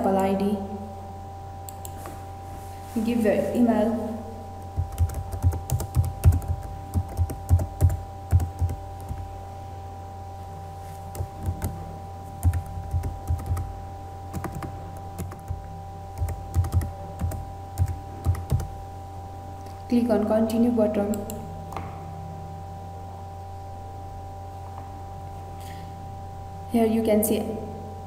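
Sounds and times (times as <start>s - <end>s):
keyboard typing: 4.8s - 9.3s, 11.1s - 11.8s, 12.4s - 13.7s, 14.3s - 15.6s, 16.2s - 18.7s.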